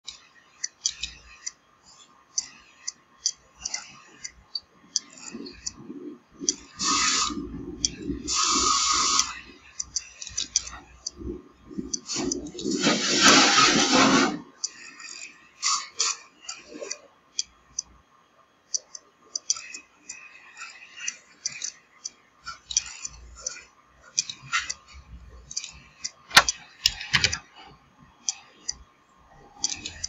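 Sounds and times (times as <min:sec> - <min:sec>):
sharp clicks: 0:00.0 - 0:01.6, 0:25.4 - 0:27.5, 0:29.6 - 0:30.0
rushing hissing noise bursts: 0:08.3 - 0:09.3, 0:12.7 - 0:14.3.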